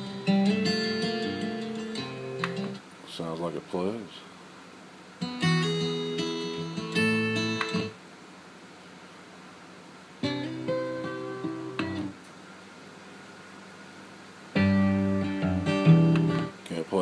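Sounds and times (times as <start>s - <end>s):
guitar music from a stereo: 0.0s - 2.8s, 5.2s - 8.0s, 10.2s - 12.2s, 14.5s - 16.6s.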